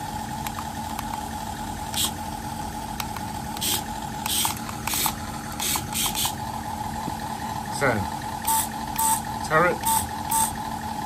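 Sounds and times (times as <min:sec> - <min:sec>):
toy engine sound effect humming: 0:01.7 - 0:02.3, 0:03.5 - 0:06.4, 0:08.4 - 0:10.7
small electric motors whirring: 0:01.9 - 0:02.2, 0:03.6 - 0:06.4, 0:09.8 - 0:10.6.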